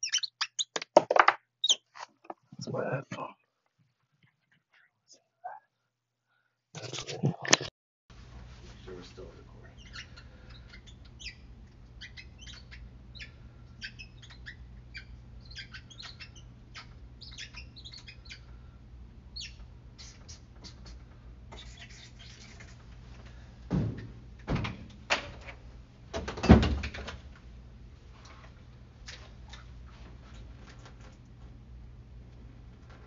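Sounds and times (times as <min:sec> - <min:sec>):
steady low hum: 0:08.2 - 0:21.5.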